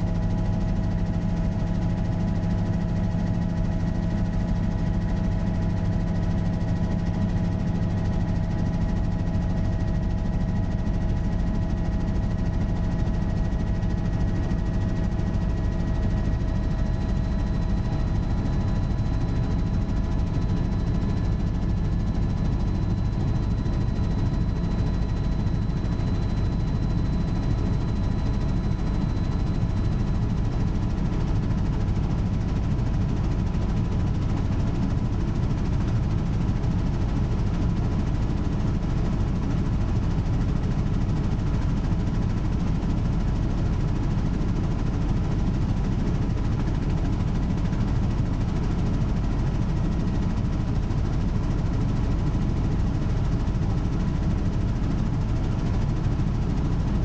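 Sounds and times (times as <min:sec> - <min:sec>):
faint high whine: 0:00.0 - 0:33.8
helicopter engine and rotors drone: 0:00.0 - 0:57.0.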